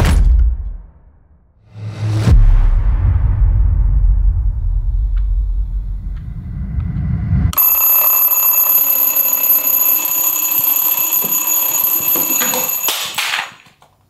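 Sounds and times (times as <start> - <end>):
low rumble: 2.3 - 7.5
alarm clock ringing: 7.6 - 13.5.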